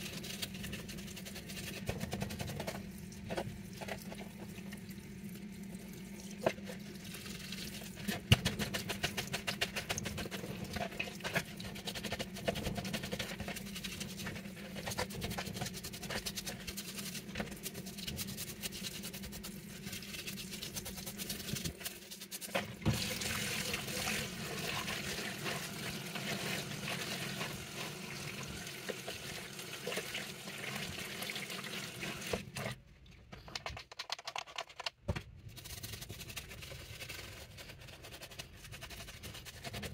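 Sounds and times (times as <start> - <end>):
clicks and scrapes: 32.6 - 39.9.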